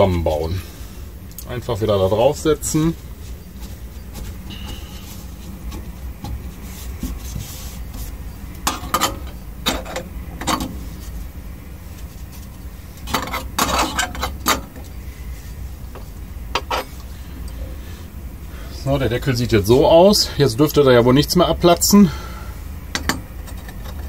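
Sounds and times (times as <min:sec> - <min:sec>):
tissue rubbing: 0:02.9 - 0:08.2
metal burner cap clinking: 0:16.6 - 0:17.0.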